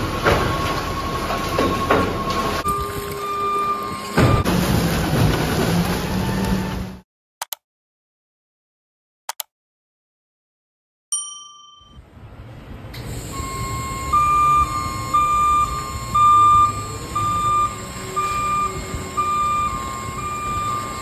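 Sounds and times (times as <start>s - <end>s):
truck backup alarm beeping: 0.0s - 4.8s, 13.0s - 21.0s
garbage truck rumble: 0.0s - 7.0s, 12.1s - 21.0s
bell-like notification chime: 11.2s - 12.0s.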